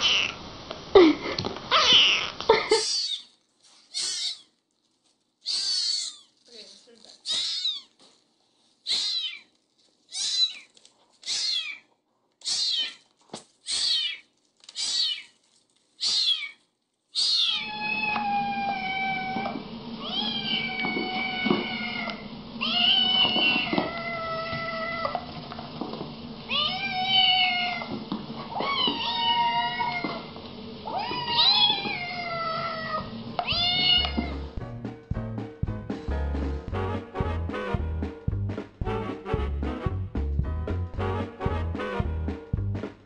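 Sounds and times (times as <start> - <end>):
cats meowing in drawn-out calls: 0.0 - 0.4, 1.7 - 4.5, 5.4 - 6.3, 7.2 - 7.9, 8.9 - 9.5, 10.1 - 13.0, 13.7 - 15.3, 16.0 - 16.6, 17.2 - 25.3, 26.5 - 34.4
kitten mewing: 1.7 - 4.5, 5.4 - 6.4, 7.2 - 7.9, 8.8 - 9.5, 10.1 - 13.0, 13.6 - 15.3, 16.0 - 25.2, 30.9 - 34.5.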